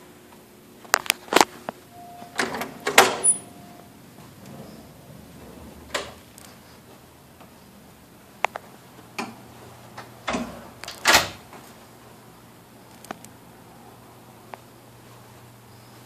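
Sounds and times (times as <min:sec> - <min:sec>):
latch and door rattling: 0:02.3 - 0:03.5, 0:04.4 - 0:06.3, 0:10.0 - 0:11.5
lock clicking: 0:10.2 - 0:11.4.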